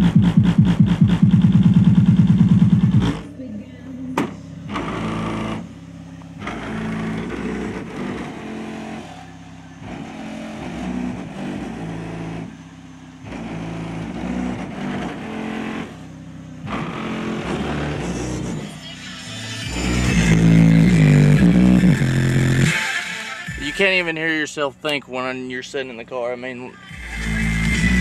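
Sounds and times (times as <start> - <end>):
bass-heavy music from car stereo: 0.0 - 28.0.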